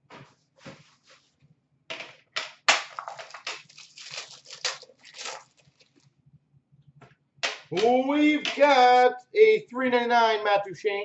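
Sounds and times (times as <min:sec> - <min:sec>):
foil wrapper crinkling: 0:02.9 - 0:06.1.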